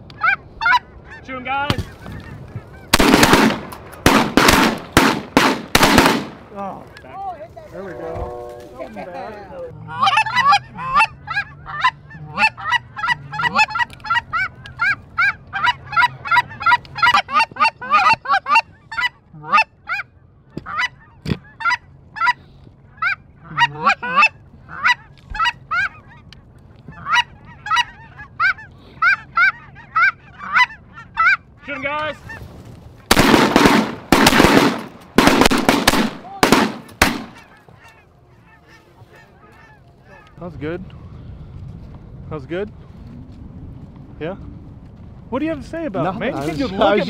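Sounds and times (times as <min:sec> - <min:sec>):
geese honking and clucking: 0:00.1 - 0:04.6, 0:06.9 - 0:41.2
loud shotgun shots: 0:02.9 - 0:06.4, 0:33.1 - 0:37.4.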